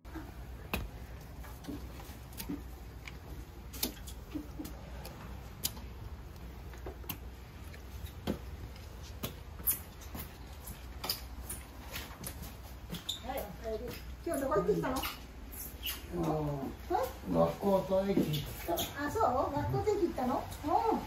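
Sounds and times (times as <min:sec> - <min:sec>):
footsteps climbing stairs: 0:00.1 - 0:05.9, 0:06.6 - 0:14.6.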